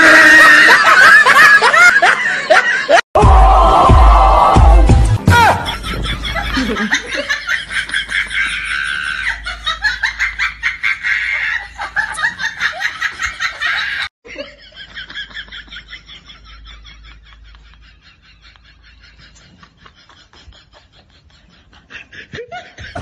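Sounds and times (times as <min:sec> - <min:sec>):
rapid pulsing laughter: 0:05.4 - 0:23.0.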